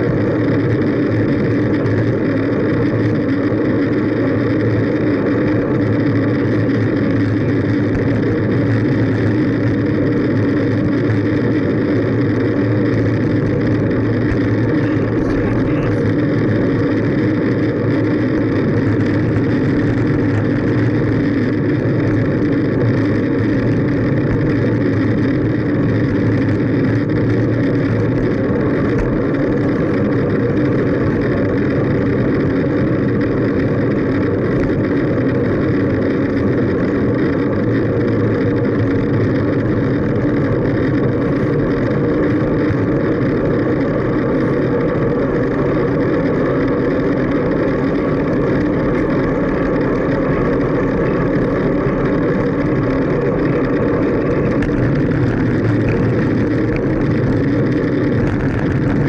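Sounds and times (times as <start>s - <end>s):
bicycle road and wind noise: 0.0s - 59.0s.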